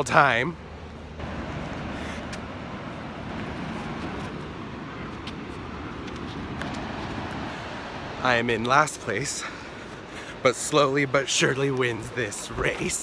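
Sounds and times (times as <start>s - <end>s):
steady outdoor rushing noise: 0.0s - 13.0s.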